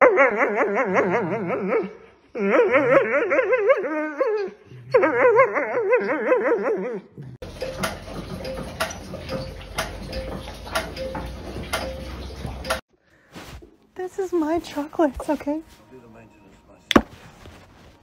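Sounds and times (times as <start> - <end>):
dog whining: 0.0 - 7.3.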